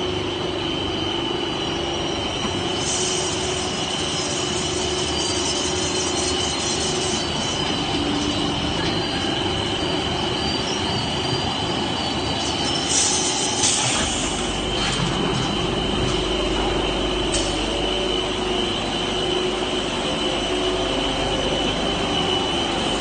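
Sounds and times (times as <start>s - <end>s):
high-pitched machine whine: 0.0s - 23.0s
production line machinery din: 0.0s - 23.0s
low machine hum: 14.1s - 23.0s.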